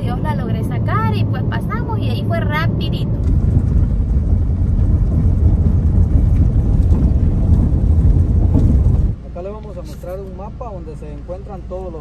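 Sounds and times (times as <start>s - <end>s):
wind buffeting microphone: 0.0s - 9.2s
car driving on dirt road: 0.0s - 12.0s.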